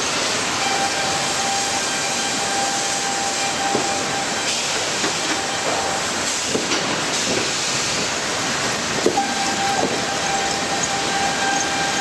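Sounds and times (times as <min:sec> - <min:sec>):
sawmill machinery running: 0:00.1 - 0:12.0
held machine whine: 0:08.7 - 0:12.0
timber knocking on roller conveyor: 0:09.0 - 0:10.5.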